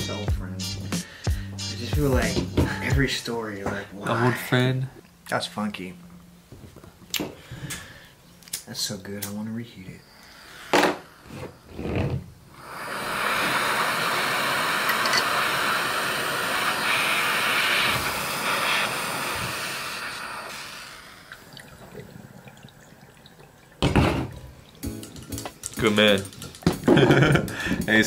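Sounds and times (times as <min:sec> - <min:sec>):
butane torch hissing: 0:00.0 - 0:04.1, 0:09.1 - 0:23.0, 0:26.8 - 0:28.0.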